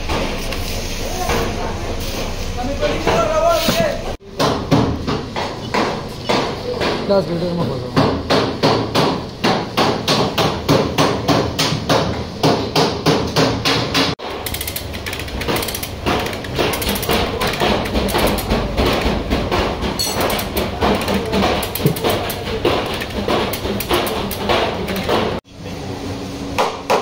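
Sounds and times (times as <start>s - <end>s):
hammer beating sheet metal: 4.2s - 7.2s, 8.0s - 14.4s, 15.4s - 25.4s.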